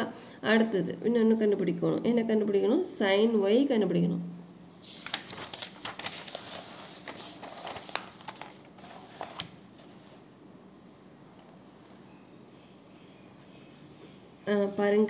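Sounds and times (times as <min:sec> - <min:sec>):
paper rustling and crinkling: 0:04.8 - 0:10.3.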